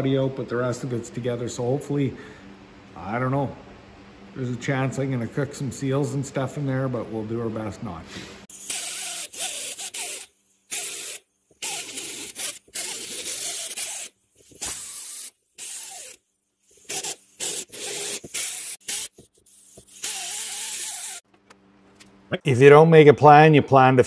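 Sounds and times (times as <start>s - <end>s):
pneumatic die grinder whining: 8.5s - 21.2s.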